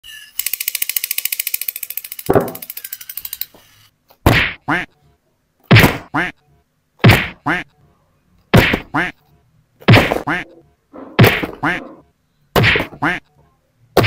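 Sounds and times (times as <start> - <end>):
toy buzzing rattle: 0.0 - 3.9
sharp thwacks: 4.2 - 4.6, 5.7 - 6.1, 7.0 - 7.4, 8.5 - 9.0, 9.8 - 10.4, 11.2 - 11.7, 12.6 - 13.0.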